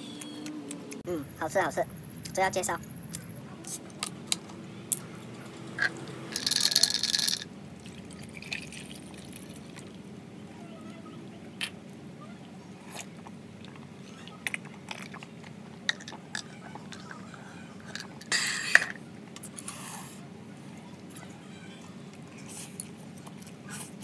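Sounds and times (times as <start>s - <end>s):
liquid pouring into a mug: 6.4s - 9.9s.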